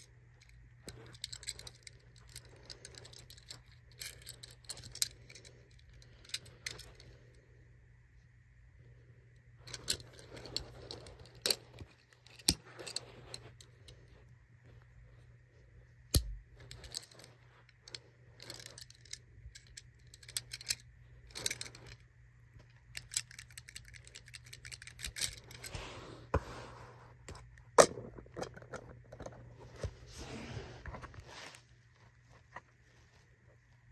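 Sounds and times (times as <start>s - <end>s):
soft rubbing and rustling: 29.4s - 33.9s.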